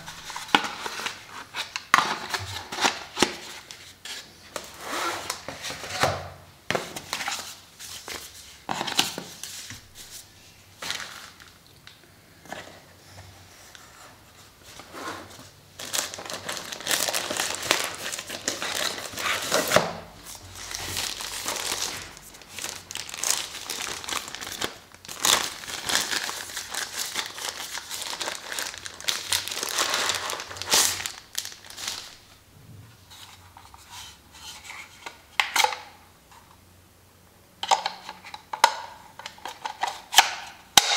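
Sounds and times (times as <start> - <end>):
paper crinkling: 15.8 - 32.3.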